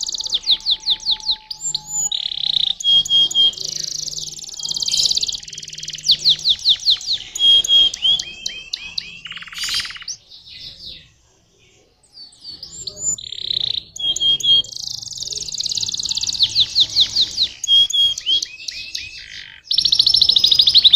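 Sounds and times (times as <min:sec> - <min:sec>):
canary singing trills: 0:00.0 - 0:20.9.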